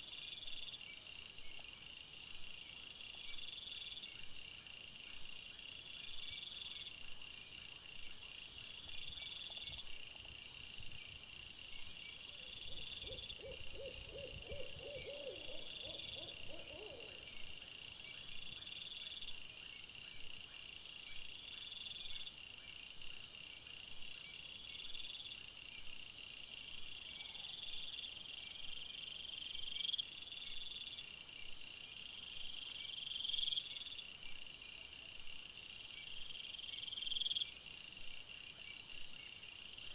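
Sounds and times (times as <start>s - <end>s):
high insect chirping: 8.6s - 17.6s
low evenly spaced calls: 12.6s - 17.3s.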